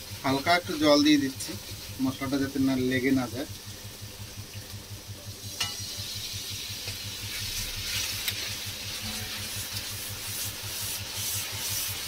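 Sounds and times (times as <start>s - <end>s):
water sizzling in hot pan: 0.0s - 12.0s
metal spatula stirring: 7.2s - 12.0s.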